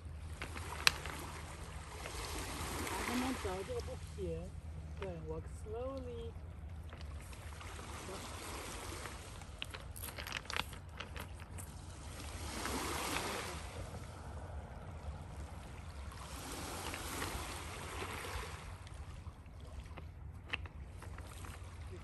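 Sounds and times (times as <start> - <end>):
stones clicking underfoot: 0.0 - 2.2, 6.7 - 7.6, 8.4 - 13.3, 20.0 - 21.9
lake waves washing on stones: 0.0 - 22.0
low wind rumble on microphone: 0.0 - 22.0.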